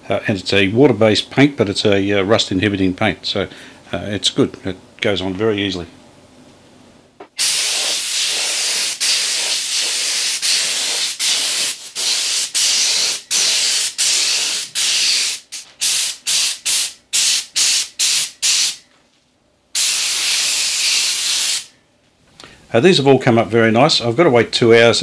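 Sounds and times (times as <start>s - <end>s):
paint spray gun hissing: 7.4s - 18.8s, 19.8s - 21.7s.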